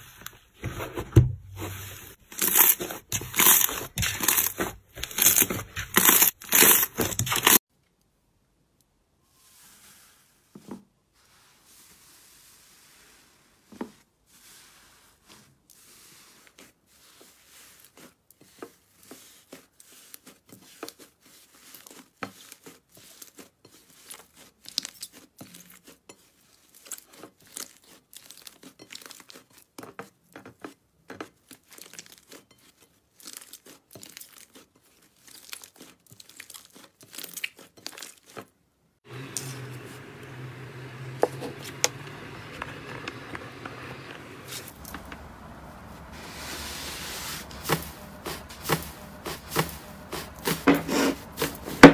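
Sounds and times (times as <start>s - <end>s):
slime crackling and tearing: 2.3s - 7.6s, 33.2s - 38.4s.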